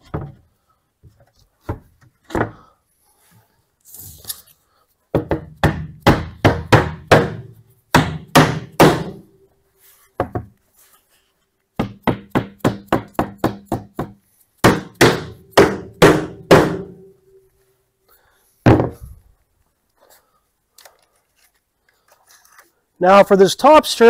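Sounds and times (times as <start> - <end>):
mallet striking wood: 5.1 - 9.3, 11.8 - 17.1.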